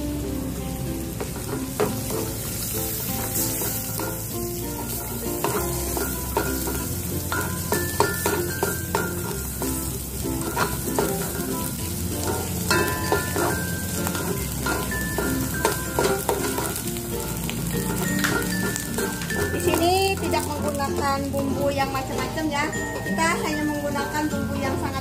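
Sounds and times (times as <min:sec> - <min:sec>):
egg sizzling in butter: 0:00.2 - 0:21.6
spatula scraping a wok: 0:01.3 - 0:16.8.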